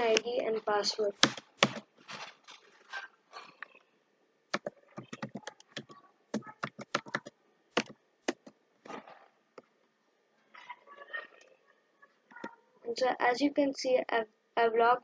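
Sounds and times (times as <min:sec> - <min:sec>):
keyboard typing: 0:01.1 - 0:01.9, 0:04.5 - 0:08.6.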